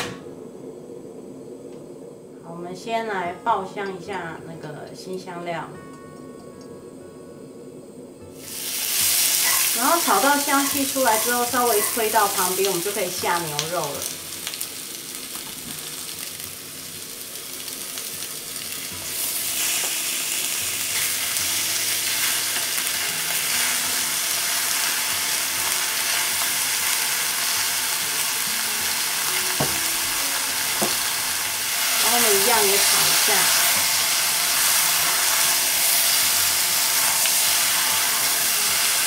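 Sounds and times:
onions sizzling in hot oil: 0:08.3 - 0:39.0.

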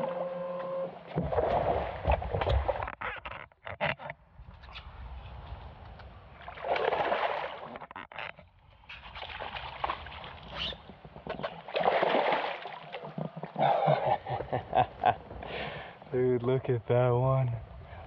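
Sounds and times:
water splashing: 0:01.0 - 0:03.4, 0:06.3 - 0:16.0
wind and water wash: 0:04.4 - 0:08.0, 0:08.7 - 0:18.0.

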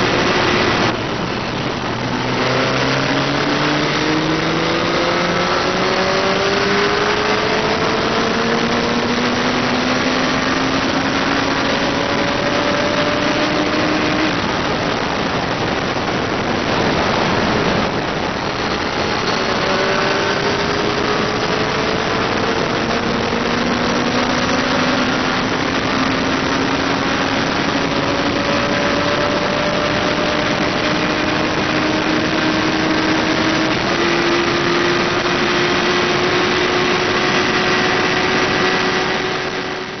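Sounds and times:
motorcycle engine revving: 0:00.0 - 0:40.0
wind rush: 0:00.0 - 0:40.0.

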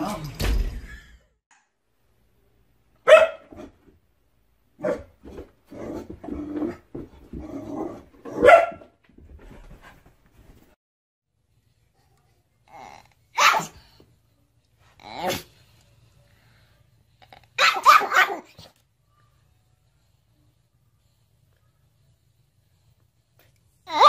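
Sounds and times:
small dogs barking: 0:03.0 - 0:03.7, 0:08.3 - 0:08.8, 0:13.4 - 0:13.8, 0:17.6 - 0:18.6.

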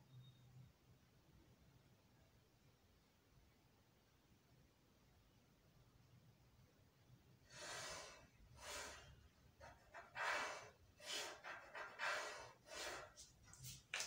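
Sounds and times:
pencil strokes on paper: 0:07.5 - 0:13.9.

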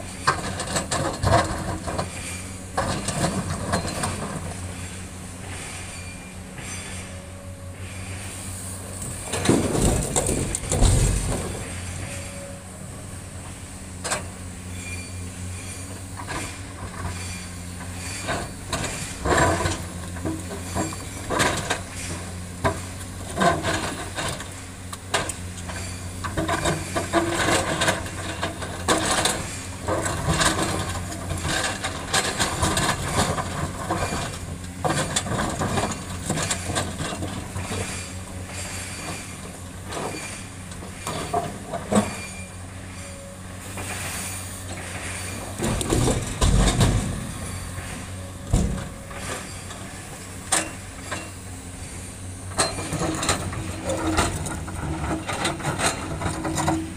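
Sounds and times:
diesel engine running: 0:00.0 - 0:56.9
boulders crashing into truck: 0:09.2 - 0:12.3, 0:45.5 - 0:47.7, 0:48.4 - 0:49.6.

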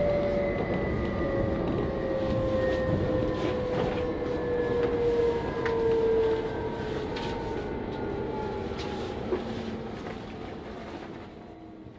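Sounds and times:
train wheels rumbling on rails: 0:00.0 - 0:11.9.

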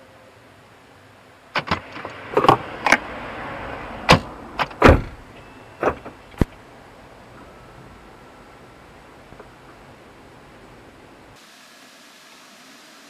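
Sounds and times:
car door thud closing: 0:04.1 - 0:06.5
car door knocks and clicks: 0:04.1 - 0:06.6.

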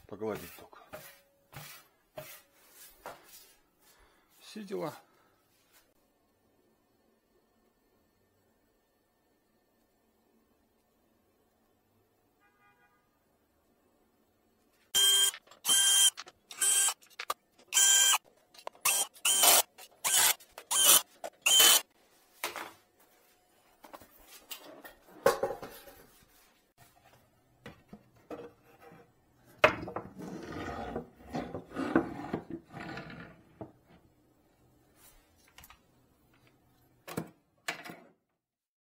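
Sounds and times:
cordless drill whining: 0:15.0 - 0:17.0, 0:17.7 - 0:18.2, 0:18.8 - 0:21.8.

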